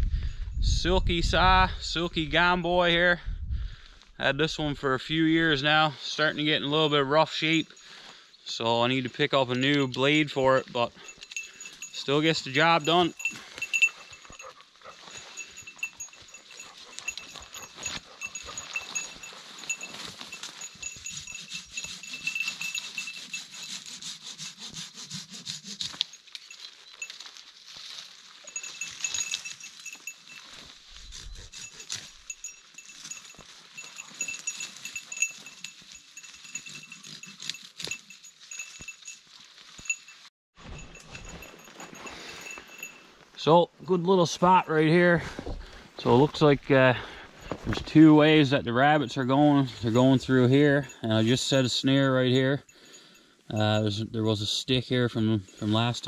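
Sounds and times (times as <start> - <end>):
brush rustling: 8.9 - 52.5
hand saw cutting branches: 12.6 - 27.2, 30.9 - 38.8.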